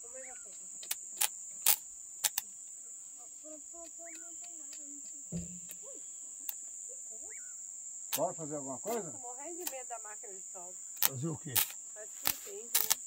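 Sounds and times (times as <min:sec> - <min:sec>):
crickets chirring: 0:00.0 - 0:13.0
low thump: 0:05.3 - 0:05.8
faint voices: 0:08.2 - 0:13.0.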